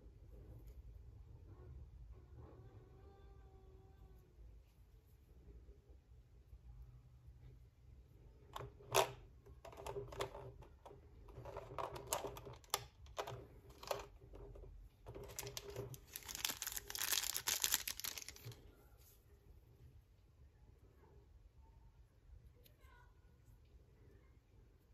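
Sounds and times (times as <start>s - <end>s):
plastic parts clicking and tapping: 8.6s - 18.6s
plastic crinkling: 15.1s - 18.7s.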